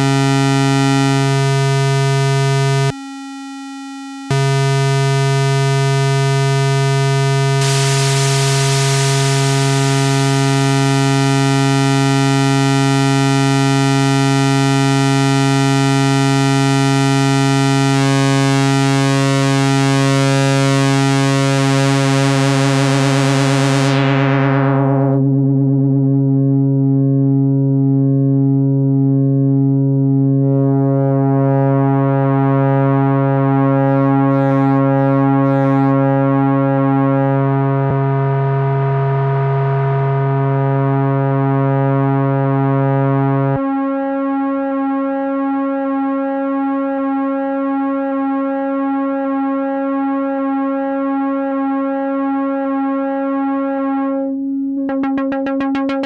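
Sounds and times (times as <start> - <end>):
synthesizer droning note: 0.0 - 45.8, 48.6 - 56.0.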